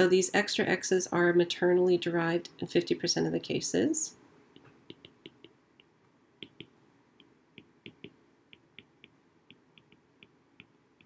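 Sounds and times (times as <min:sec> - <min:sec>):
stylus tapping on glass screen: 0:04.6 - 0:11.0.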